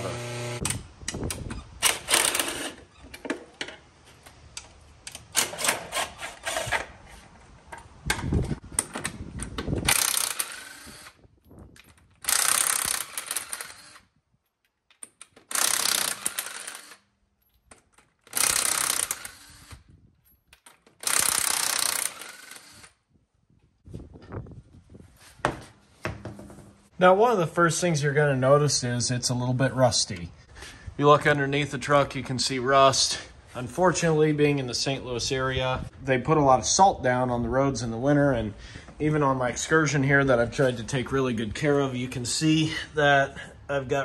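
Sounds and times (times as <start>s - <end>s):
impact wrench hammering lug nuts: 15.2s - 17.0s, 18.2s - 19.5s, 21.0s - 22.8s.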